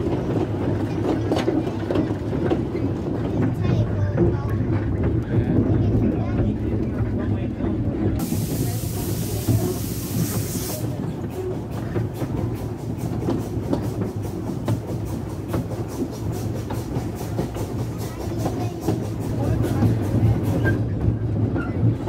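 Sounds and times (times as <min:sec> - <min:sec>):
steam train rumbling: 0:00.0 - 0:22.0
steam hissing: 0:08.2 - 0:20.8.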